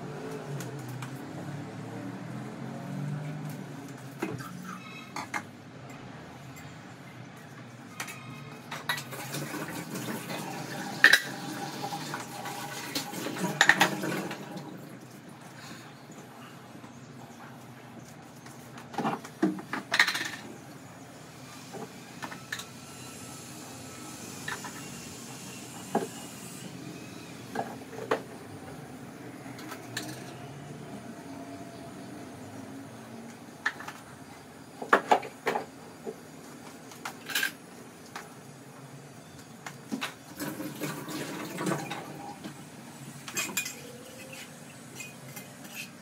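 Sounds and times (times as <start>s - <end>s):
containers and utensils clinking: 8.0s - 14.8s, 29.5s - 30.5s, 43.2s - 46.0s.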